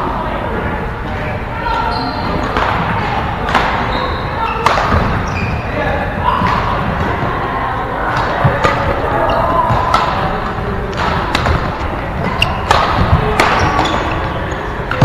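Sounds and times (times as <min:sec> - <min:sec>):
rackets hitting shuttlecock: 0:01.7 - 0:05.4, 0:08.1 - 0:15.0.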